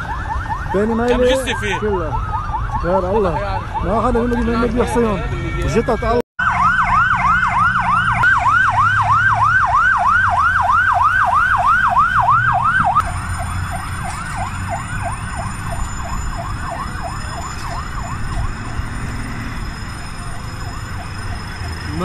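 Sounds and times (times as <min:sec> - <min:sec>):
fire engine siren yelping: 0:00.0 - 0:22.0.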